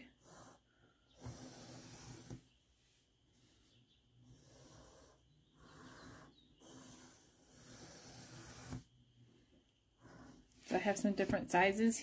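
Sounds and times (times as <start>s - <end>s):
pencil scratching on paper: 1.2s - 2.4s, 4.2s - 8.9s, 10.0s - 11.9s.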